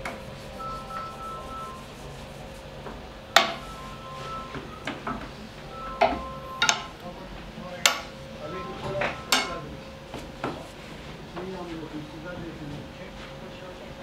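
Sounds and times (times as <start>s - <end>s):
rolling pin rubbing on dough: 0.0s - 4.8s.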